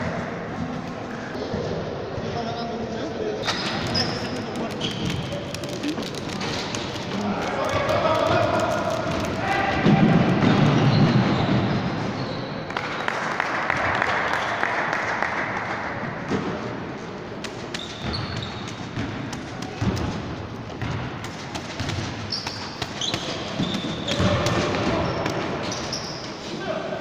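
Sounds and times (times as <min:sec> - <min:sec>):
sneaker squeaks: 0:03.4 - 0:08.4, 0:10.4 - 0:12.7, 0:17.5 - 0:21.0, 0:21.7 - 0:26.7
basketball bouncing on wooden floor: 0:17.8 - 0:25.8.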